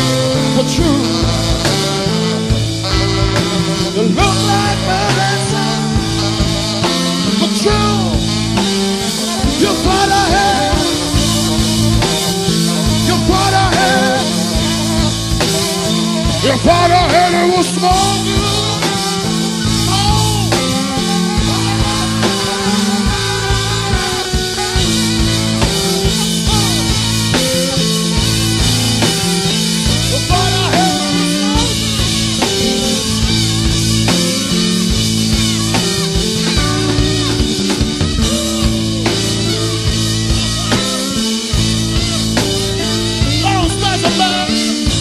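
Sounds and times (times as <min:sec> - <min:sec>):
drum kit: 0:00.0 - 0:45.0
lead instrument bending notes: 0:00.0 - 0:45.0
steady bass line: 0:00.0 - 0:45.0.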